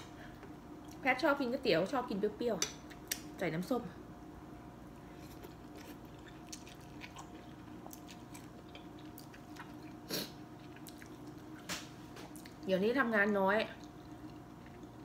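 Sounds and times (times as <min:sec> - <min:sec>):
person chewing and slurping noodles: 0:05.1 - 0:11.6, 0:13.8 - 0:15.0.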